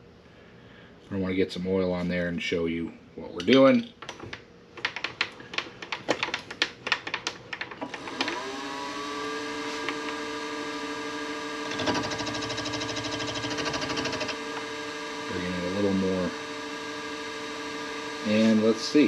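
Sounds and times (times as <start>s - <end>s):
clicks and taps: 3.4s - 8.4s
milling machine spindle whine: 7.9s - 19.0s
cutter rasping metal: 11.6s - 14.6s.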